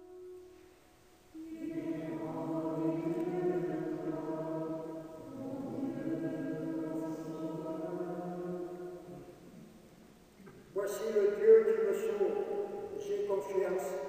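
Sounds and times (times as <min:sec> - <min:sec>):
group singing a chant: 0:01.4 - 0:09.6.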